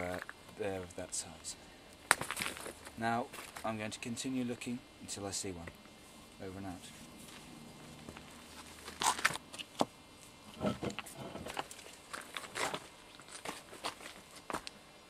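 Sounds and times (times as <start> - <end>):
footsteps scuffing on rock: 12.1 - 14.7.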